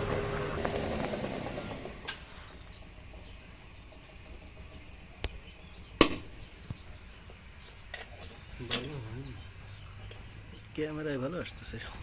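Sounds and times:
faint bird chirps: 2.2s - 11.8s.

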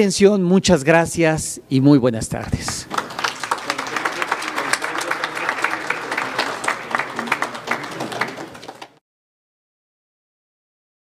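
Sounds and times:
people applauding: 2.4s - 9.0s
murmur of voices: 3.4s - 8.9s.

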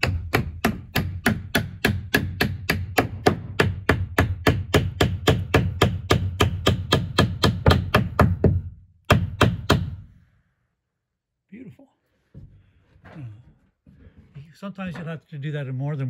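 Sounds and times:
hammer tapping wooden wedge: 0.0s - 10.0s.

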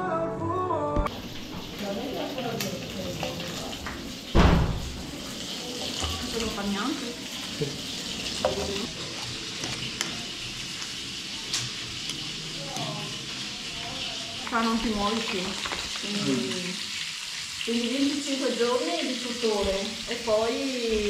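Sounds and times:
food sizzling in a pan: 1.1s - 21.0s
loud thump: 4.4s - 5.0s.

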